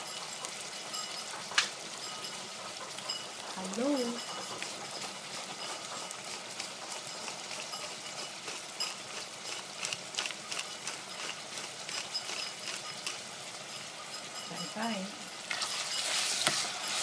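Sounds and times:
spice grinder clicking and crunching: 0:00.0 - 0:14.0
faint sizzle in pan: 0:00.0 - 0:17.0.

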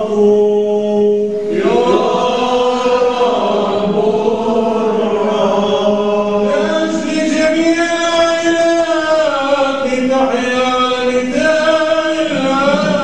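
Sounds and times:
steady low drone note: 0:00.0 - 0:09.1
voices chanting: 0:01.4 - 0:08.3.

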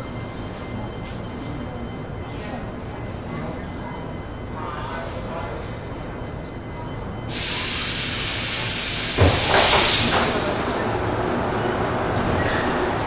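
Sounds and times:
compressed air hissing: 0:07.3 - 0:10.8
gush of air: 0:07.3 - 0:10.8.

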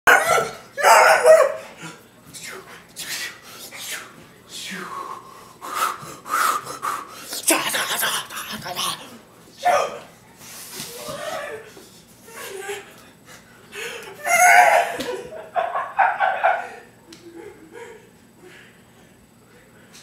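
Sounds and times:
man shouting karate shouts: 0:09.6 - 0:10.0.

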